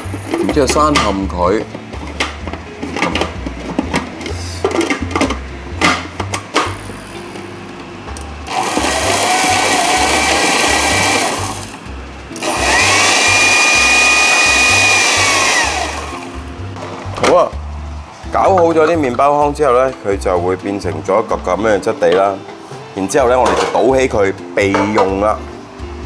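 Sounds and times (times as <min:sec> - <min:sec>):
food processor motor whine: 0:08.4 - 0:11.8, 0:12.4 - 0:16.3.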